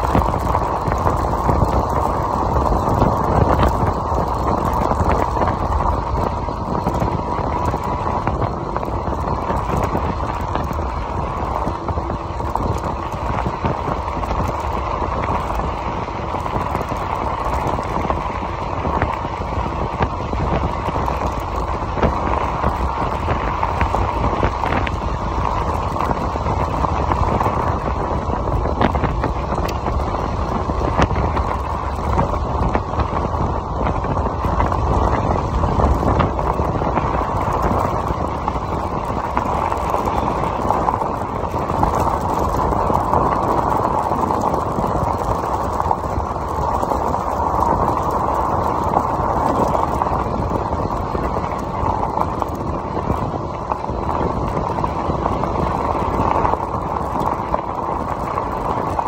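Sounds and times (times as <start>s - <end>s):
tyres rolling over gravel: 0.0s - 59.0s
wind on microphone: 0.0s - 59.0s.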